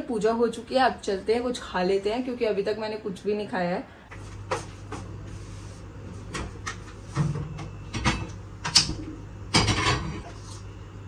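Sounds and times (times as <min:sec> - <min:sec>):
steady low hum: 0:03.8 - 0:11.0.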